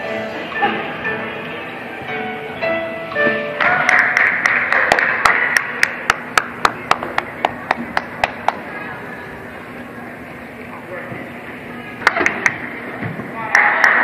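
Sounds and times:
floor music: 0.0 - 9.0
close hand claps: 3.6 - 7.3
spectators clapping and cheering: 3.6 - 8.6, 13.4 - 14.0.

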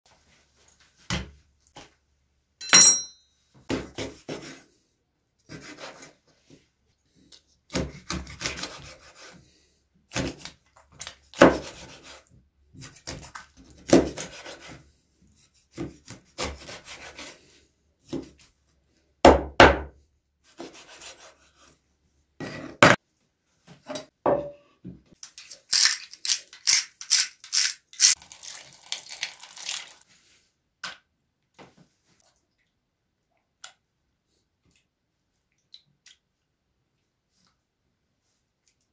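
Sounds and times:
knife scraping fish: 5.5 - 6.2, 7.9 - 9.4, 10.1 - 14.8, 15.4 - 17.6, 20.5 - 21.8.

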